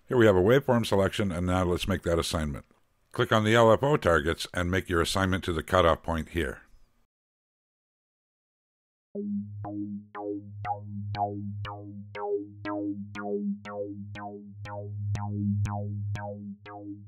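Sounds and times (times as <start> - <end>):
synthesizer bass pattern: 9.2 - 17.0.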